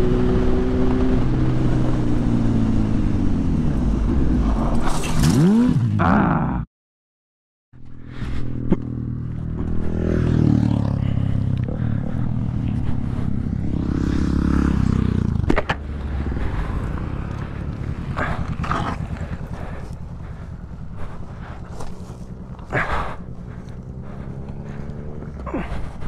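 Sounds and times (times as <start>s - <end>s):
motorcycle engine idling: 7.8s - 26.0s.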